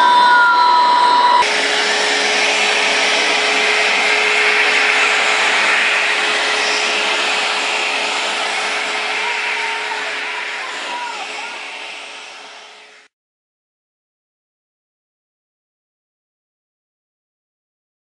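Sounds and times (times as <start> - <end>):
machine whine: 0.0 - 13.1
vacuum cleaner running: 0.0 - 13.1.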